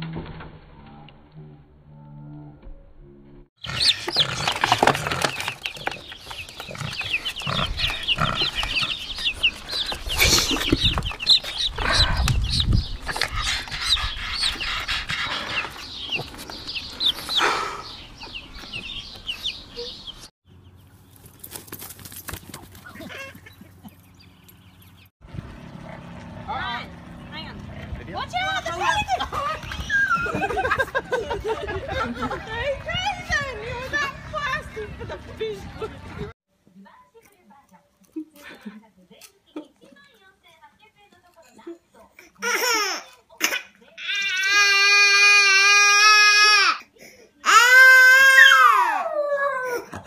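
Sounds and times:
baby chicks peeping: 3.6 - 21.4, 28.6 - 32.2.

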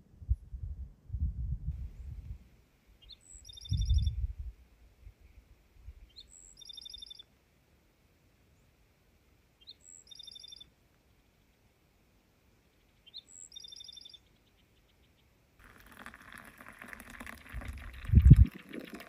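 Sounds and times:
songbird singing a trill: 3.0 - 4.3, 6.0 - 7.3, 9.6 - 11.6, 12.7 - 15.4.

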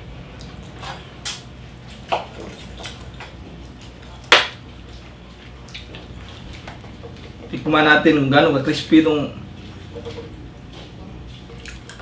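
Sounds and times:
lip smacks: 0.4 - 3.4, 11.5 - 12.0
wet chewing: 0.4 - 7.6, 9.6 - 12.0.

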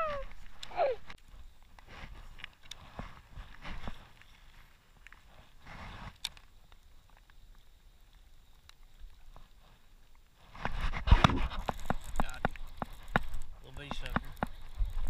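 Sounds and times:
fishing reel clicks and rustle: 0.3 - 15.0
rubber grip rubbing on microphone: 5.3 - 6.2, 10.4 - 15.0.

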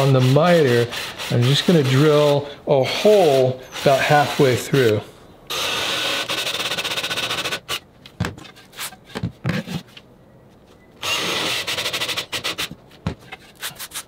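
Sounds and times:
drill boring into wood: 5.5 - 7.8, 11.0 - 12.7.

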